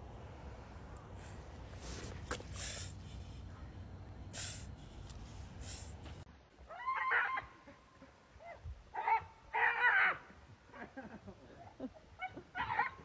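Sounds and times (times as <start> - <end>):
short hissing puffs: 0.2 - 3.6, 4.2 - 6.3.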